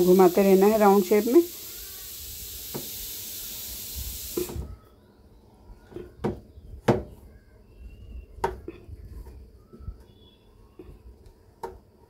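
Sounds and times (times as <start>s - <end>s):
hot blade hissing into plastic: 0.0s - 4.8s.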